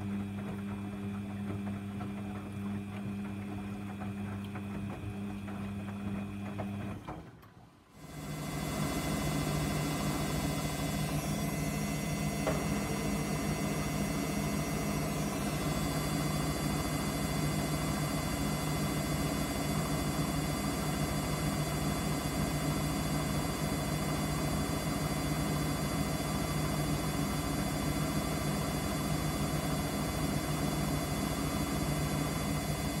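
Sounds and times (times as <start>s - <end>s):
washing machine motor hum: 0.0s - 33.0s.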